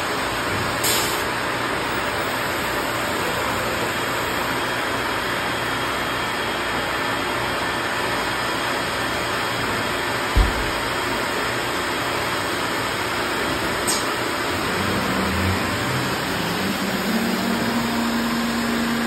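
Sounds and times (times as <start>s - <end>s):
brief low thump: 10.4s - 10.8s
cnc router running: 11.0s - 19.0s
low hum: 14.4s - 19.0s.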